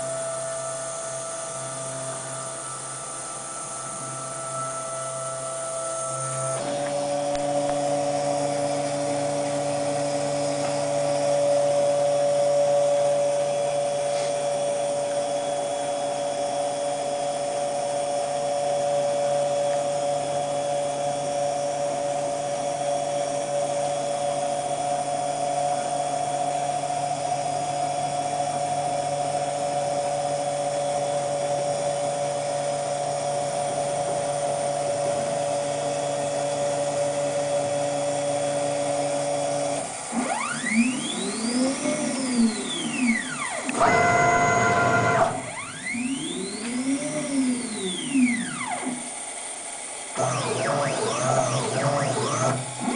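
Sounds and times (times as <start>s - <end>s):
drive motors whining: 2.1s - 16.1s, 38.0s - 49.4s, 50.1s - 52.9s.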